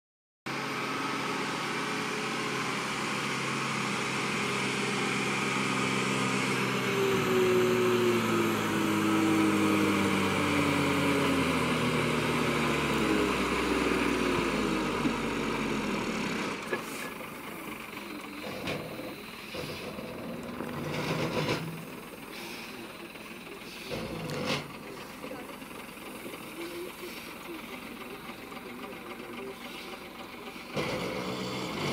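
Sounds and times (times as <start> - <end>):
diesel truck engine pulling uphill: 0.5 - 31.9.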